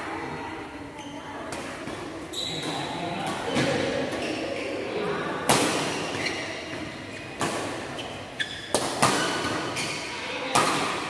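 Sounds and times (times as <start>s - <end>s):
rackets hitting shuttlecock: 5.4s - 11.0s.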